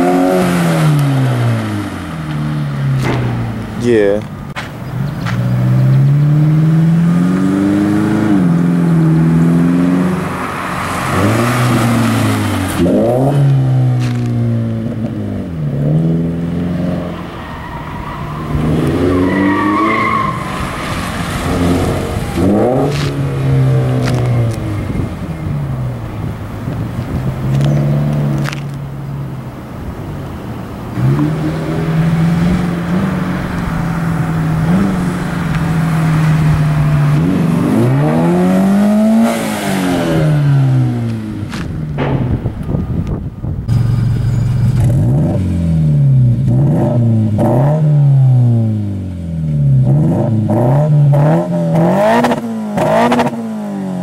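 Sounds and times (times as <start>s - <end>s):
car engine revving: 0.0s - 54.0s
car passing by: 5.2s - 14.2s, 17.0s - 25.4s
tire squeal: 16.9s - 25.8s.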